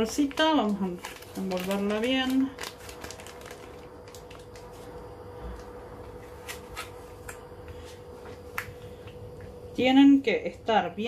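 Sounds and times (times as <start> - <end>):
plastic bag crinkling: 0.0 - 5.0
faint hum: 0.0 - 11.0.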